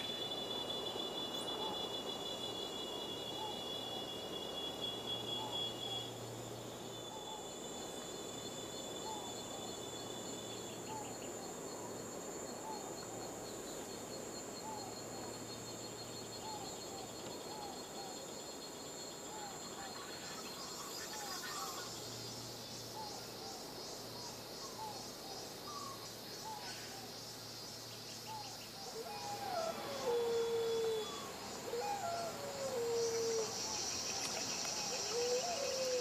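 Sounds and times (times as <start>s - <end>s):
short insect chirps: 0.0s - 12.6s, 19.8s - 36.0s
insects droning: 0.0s - 36.0s.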